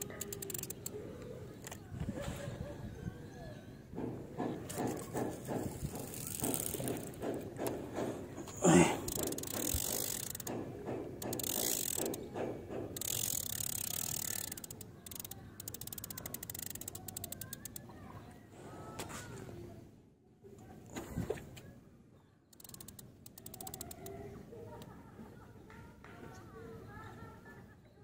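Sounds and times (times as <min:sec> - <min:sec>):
fishing reel clicker ticking: 0:00.0 - 0:01.0, 0:05.9 - 0:07.8, 0:09.0 - 0:10.6, 0:11.2 - 0:12.3, 0:13.0 - 0:17.8, 0:22.6 - 0:24.2.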